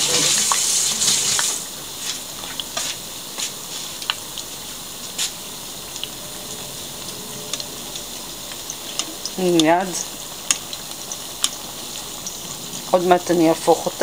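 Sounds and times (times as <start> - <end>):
fish deep-frying in oil: 0.0 - 14.0
sharp crackling pops: 7.5 - 12.8.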